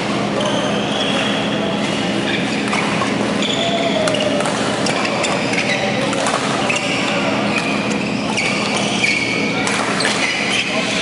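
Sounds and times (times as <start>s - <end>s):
background hum in hall: 0.0s - 11.0s
shoes squeaking on court: 0.0s - 11.0s
racket striking shuttlecock: 4.0s - 5.4s, 6.0s - 6.7s, 9.6s - 10.3s.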